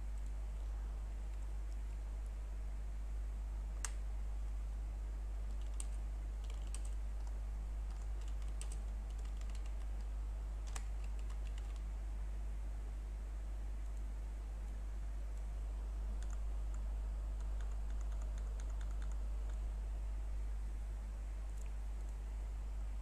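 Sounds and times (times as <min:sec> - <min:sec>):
steady low hum: 0:00.0 - 0:23.0
keyboard keys clicking: 0:05.5 - 0:11.8, 0:16.2 - 0:16.8, 0:17.4 - 0:19.6.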